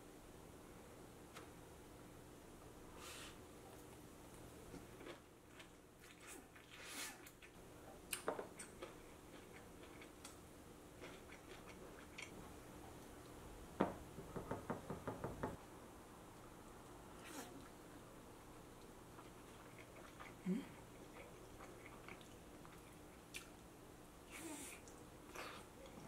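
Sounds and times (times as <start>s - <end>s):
knock: 13.8s - 15.6s.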